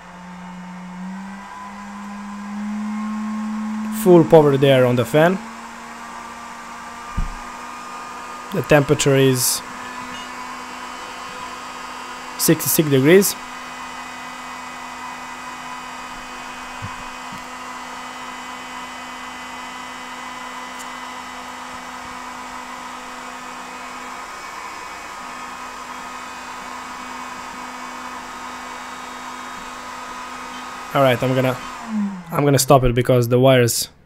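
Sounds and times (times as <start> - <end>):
cooling fan whining: 0.0 - 33.6.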